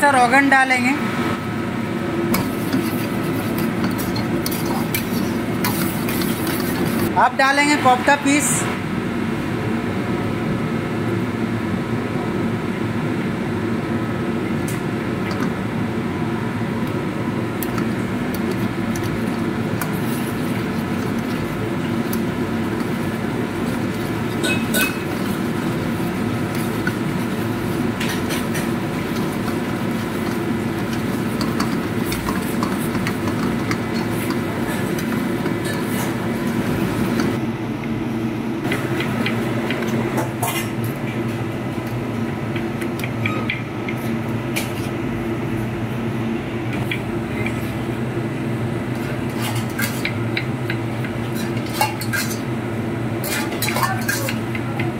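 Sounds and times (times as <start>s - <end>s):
low kitchen drone: 0.0s - 54.9s
ladle stirring thick gravy: 2.3s - 7.1s, 17.6s - 37.4s
ladle clinking against pan: 24.4s - 25.2s.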